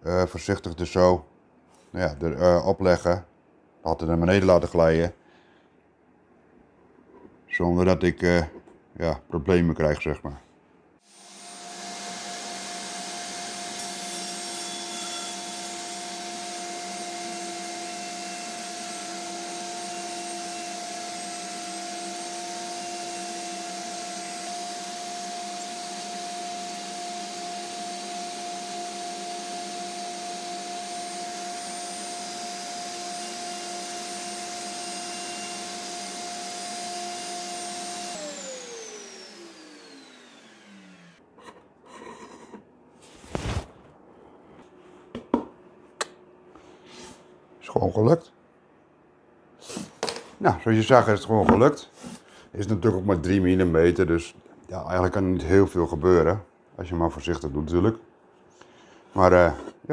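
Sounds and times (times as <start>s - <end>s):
wood router running: 11.1s - 41.2s.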